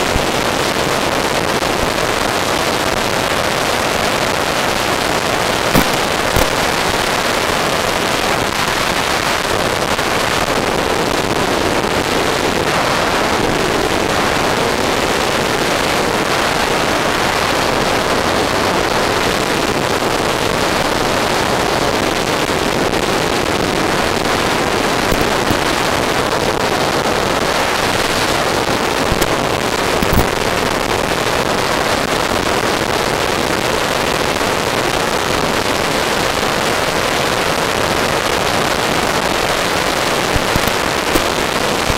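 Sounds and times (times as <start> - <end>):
sharp crackles: 0.0 - 12.7, 22.2 - 33.7, 34.4 - 41.9
loud hiss and rush: 0.0 - 41.9.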